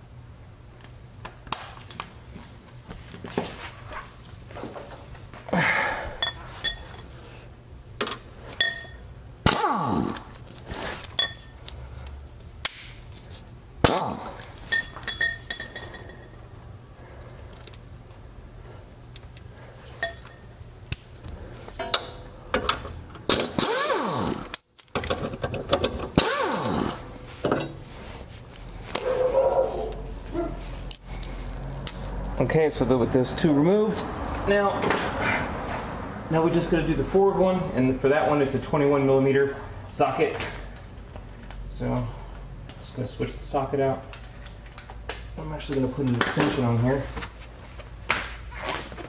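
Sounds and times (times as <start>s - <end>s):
metal tools clinking: 6.2s - 7.1s, 8.6s - 9.0s, 14.7s - 16.4s, 24.1s - 26.0s, 27.4s - 27.8s, 29.3s - 32.4s
pneumatic impact wrench bursts: 23.3s - 24.6s, 26.2s - 27.0s.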